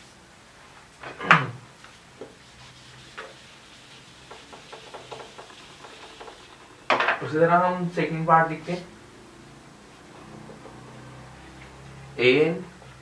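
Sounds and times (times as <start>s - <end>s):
duster rubbing whiteboard: 1.8s - 6.9s.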